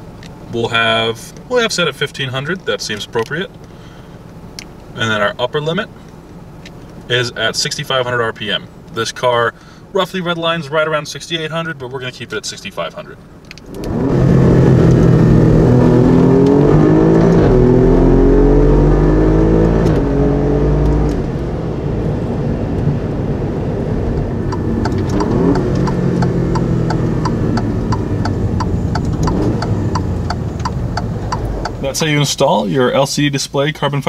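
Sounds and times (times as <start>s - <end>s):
car engine accelerating: 13.4s - 32.8s
regular ticking: 24.1s - 32.5s.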